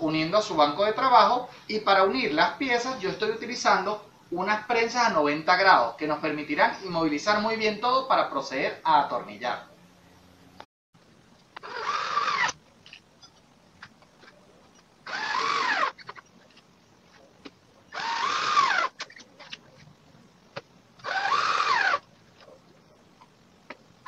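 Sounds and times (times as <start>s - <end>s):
drill motor whine: 11.6s - 12.6s, 15.0s - 16.2s, 17.9s - 19.0s, 21.0s - 22.1s.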